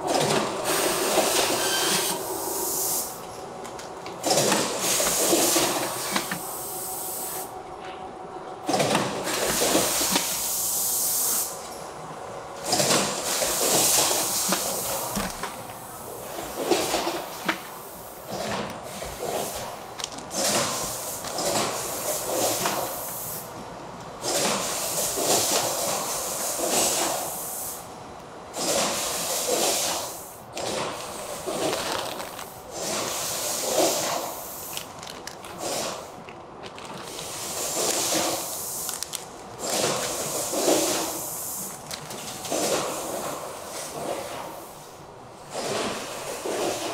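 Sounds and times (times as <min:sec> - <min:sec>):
plastic pouches crinkling: 0:31.4 - 0:32.6, 0:34.7 - 0:40.1, 0:41.7 - 0:42.3
pouches dropped into plastic crate: 0:31.5 - 0:32.5.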